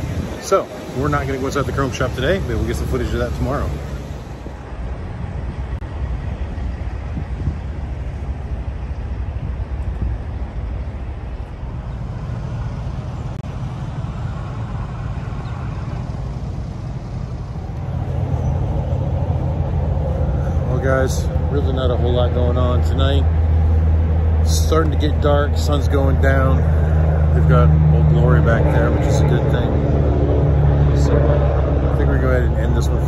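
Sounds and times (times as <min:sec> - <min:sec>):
low rumble of traffic: 0:00.0 - 0:33.0.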